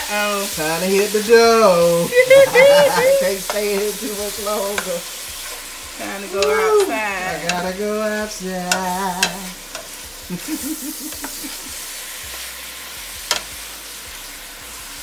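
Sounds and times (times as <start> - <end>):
person singing: 0.0 - 5.1, 6.0 - 9.6
chicken sizzling in a pot: 0.0 - 15.0.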